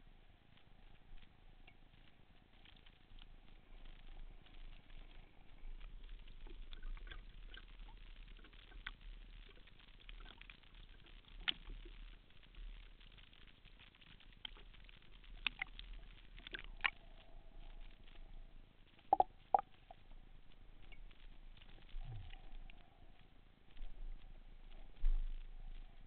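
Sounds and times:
faint water noise: 0.0s - 26.0s
low hum: 12.2s - 26.0s.

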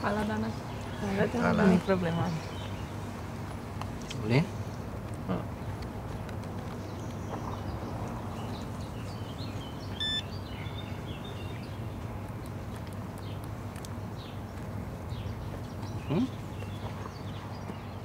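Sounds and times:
payment terminal beep: 10.0s - 10.3s.

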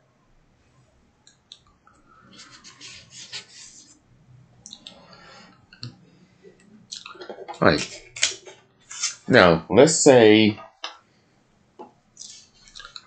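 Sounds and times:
paper rustling and rubbing: 2.3s - 4.0s.

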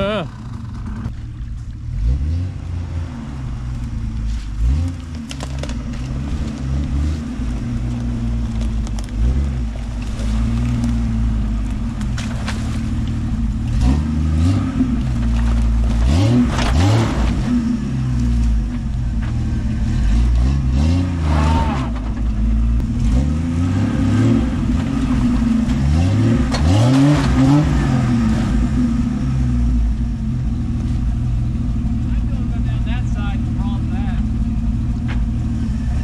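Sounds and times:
off-road vehicle engine revving: 0.0s - 36.0s
tyres cracking over rocks: 4.8s - 6.9s, 7.6s - 13.3s, 15.0s - 17.5s.

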